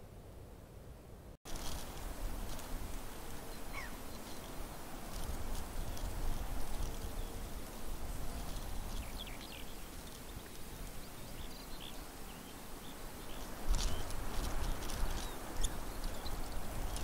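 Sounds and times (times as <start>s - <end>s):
wind rumbling on microphone: 1.5s - 17.0s
faint bird chirps: 3.5s - 4.6s
rustling clicks: 13.4s - 17.0s.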